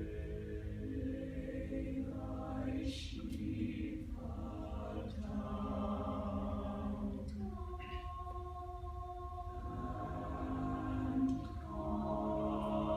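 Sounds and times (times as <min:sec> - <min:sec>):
choir hissing s sound: 0:00.0 - 0:12.9
choir singing sustained chords: 0:00.0 - 0:12.9.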